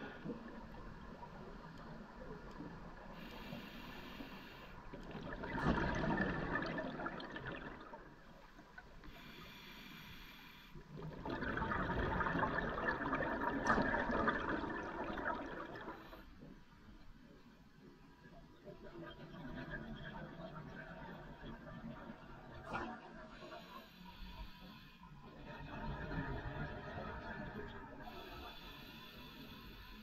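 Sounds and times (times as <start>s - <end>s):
regulator inhale hiss: 3.1s - 4.9s, 9.0s - 10.9s, 23.4s - 25.3s, 28.0s - 30.0s
exhaled bubbles: 4.9s - 8.5s, 10.9s - 16.2s, 18.8s - 23.4s, 25.4s - 28.4s.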